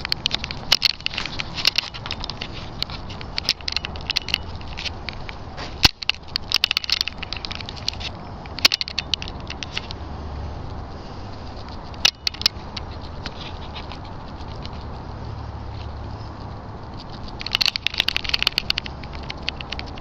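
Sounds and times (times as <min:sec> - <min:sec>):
low steady rumble: 0:00.0 - 0:20.0
footsteps on gritty concrete: 0:01.0 - 0:06.4.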